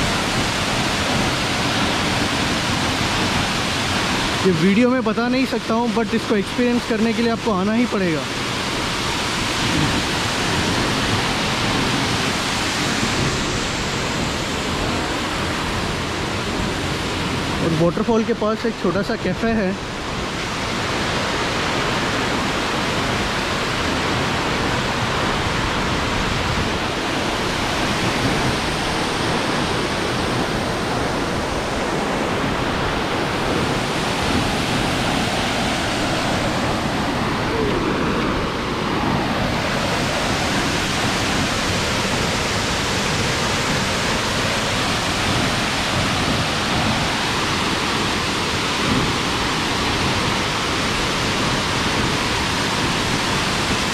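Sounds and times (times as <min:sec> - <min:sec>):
waterfall rushing: 0:00.0 - 0:53.9.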